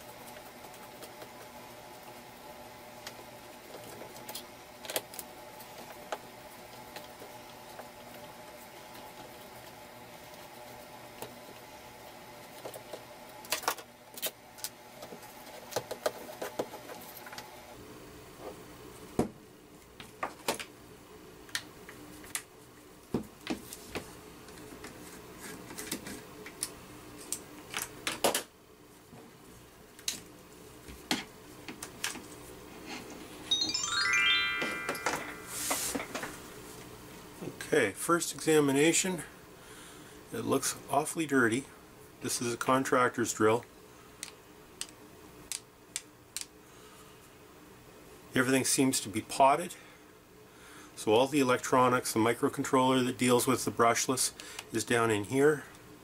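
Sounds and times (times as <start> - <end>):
faint steady hum: 28.6 - 56.0.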